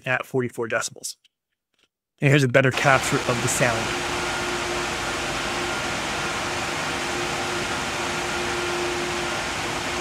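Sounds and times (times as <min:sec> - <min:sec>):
computer fans whooshing: 0:02.7 - 0:10.0.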